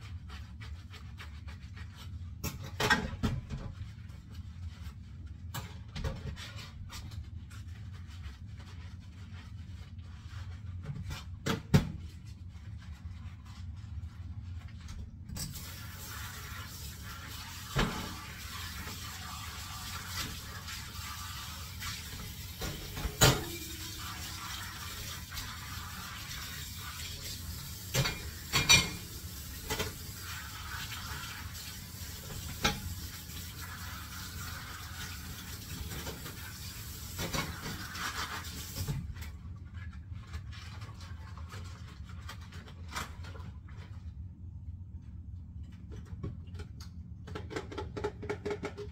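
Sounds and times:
running tap water: 15.4s - 39.2s
dishes clinking and knocking: 22.7s - 23.8s, 27.9s - 29.1s.

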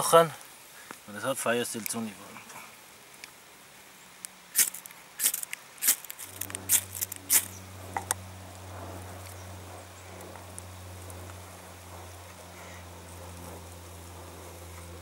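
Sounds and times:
low steady hum: 0.0s - 15.0s
ferro rod scraped with striker: 4.6s - 7.6s.

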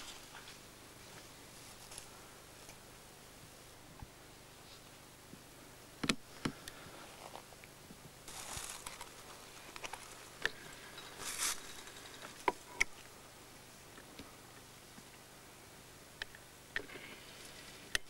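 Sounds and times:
rustling and crackling of dry brush: 0.0s - 2.9s, 6.3s - 15.2s.

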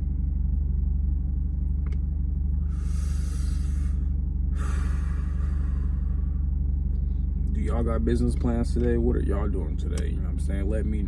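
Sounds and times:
low rumble inside car: 0.0s - 11.0s
man inhaling and exhaling smoke: 2.6s - 6.5s.

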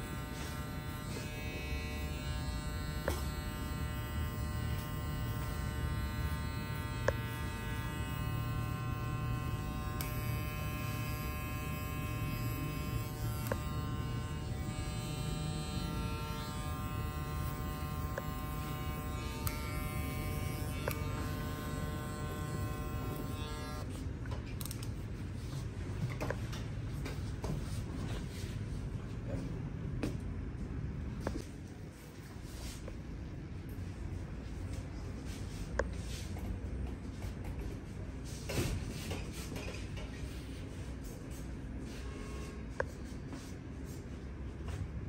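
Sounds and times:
electric hair clippers buzzing: 0.0s - 23.9s.

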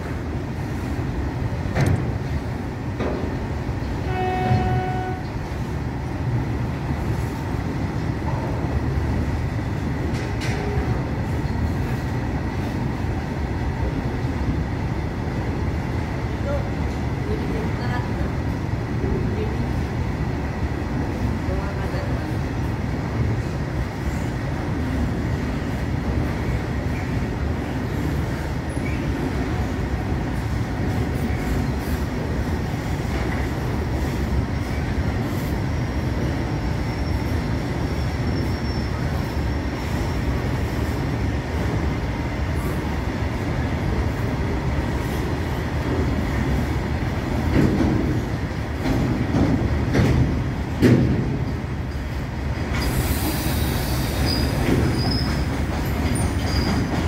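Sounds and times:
steel wheels rumbling on rails: 0.0s - 57.0s
train wagon knocks: 1.7s - 2.2s, 47.4s - 48.2s, 48.8s - 51.5s, 54.5s - 57.0s.

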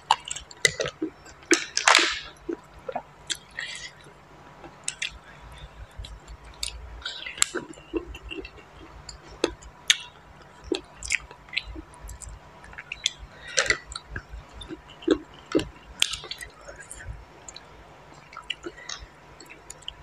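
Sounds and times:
person chewing: 0.0s - 20.0s.

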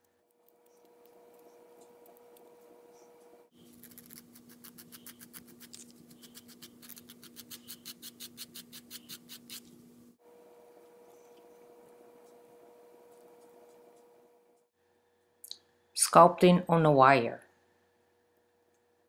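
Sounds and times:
faint steady hum: 0.0s - 19.0s
nail file rubbing back and forth: 0.6s - 9.7s.

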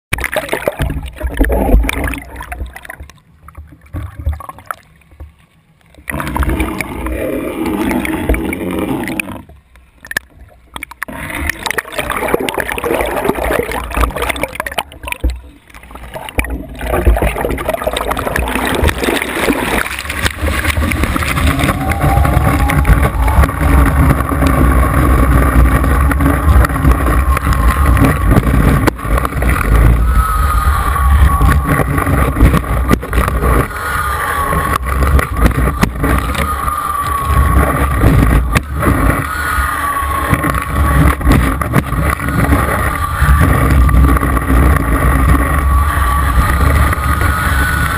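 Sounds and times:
water churning and gurgling: 0.0s - 47.9s
loud rush of water and wind: 18.4s - 47.9s.

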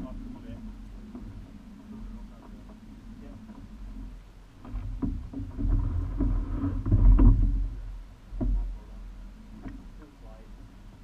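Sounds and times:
low rumble: 0.0s - 11.0s
oars working through strokes: 0.0s - 11.0s
water rushing along a hull: 0.0s - 11.0s
short knocks: 3.5s - 8.9s.

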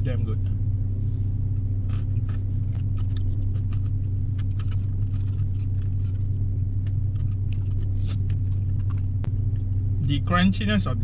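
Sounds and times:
car engine idling: 0.0s - 11.0s
crunchy pretzels being chewed: 1.8s - 10.1s.

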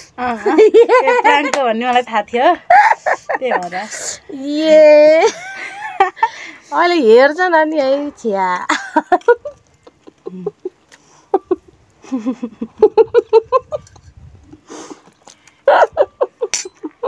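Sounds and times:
breathy hiss: 14.6s - 15.6s.

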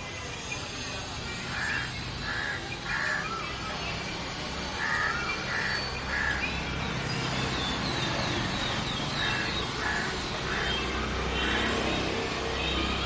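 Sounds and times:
small birds chirping: 0.0s - 13.0s
crows cawing: 1.5s - 3.8s, 4.7s - 6.6s, 9.2s - 12.0s.

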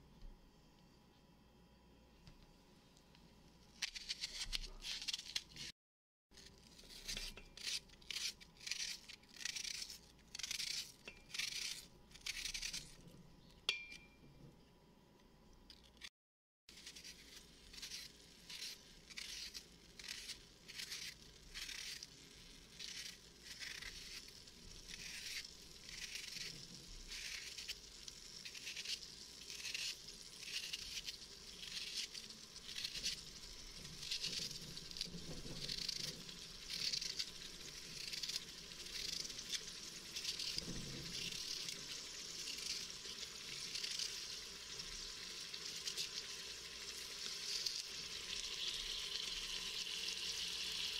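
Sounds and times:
knife slicing onion: 3.8s - 5.7s, 6.8s - 14.1s, 16.7s - 44.3s
oil sizzling: 16.7s - 50.9s.

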